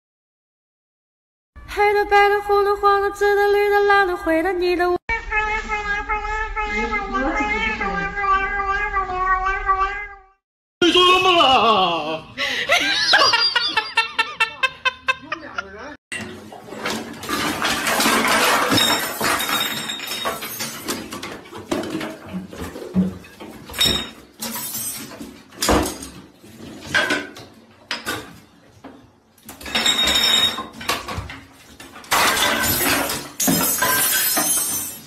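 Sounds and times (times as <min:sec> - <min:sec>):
bottles clattering and crashing: 0:16.1 - 0:28.6, 0:29.4 - 0:35.0
clinks and knocks: 0:16.2 - 0:22.9, 0:29.5 - 0:35.0.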